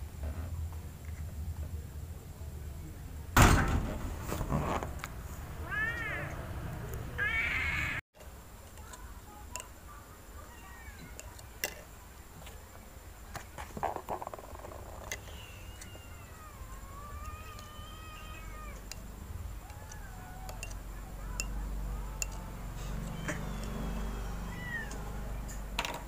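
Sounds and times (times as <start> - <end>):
loud thump: 3.4 - 4.6
kitten meowing: 5.6 - 6.3, 15.2 - 18.9, 21.3 - 25.6.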